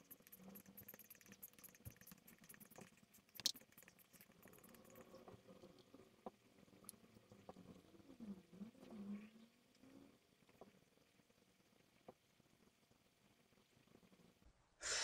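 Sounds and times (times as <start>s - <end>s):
small clicks: 0.0s - 5.1s
faint room hum: 0.0s - 15.0s.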